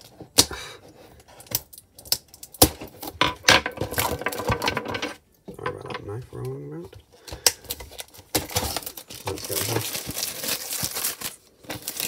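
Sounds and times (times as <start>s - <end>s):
plastic shrink-wrap crinkling: 7.6s - 12.0s.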